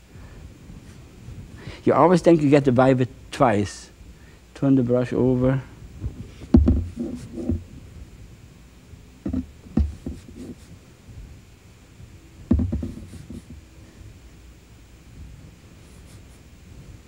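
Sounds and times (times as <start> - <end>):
canvas thumps: 6.1 - 7.7, 12.5 - 13.6
brush bristles scraping: 6.7 - 7.6, 9.3 - 10.8, 15.8 - 16.5.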